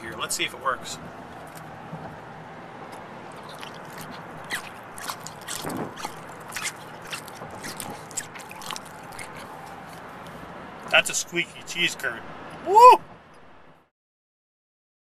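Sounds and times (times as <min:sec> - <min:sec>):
car road hum: 0:00.0 - 0:13.9
cheese curds squeaking when chewed: 0:03.3 - 0:10.1.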